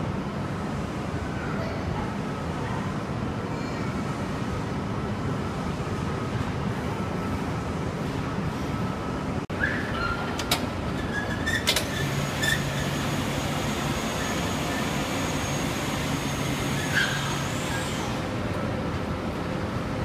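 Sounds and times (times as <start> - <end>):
machine hum: 11.7 - 20.0.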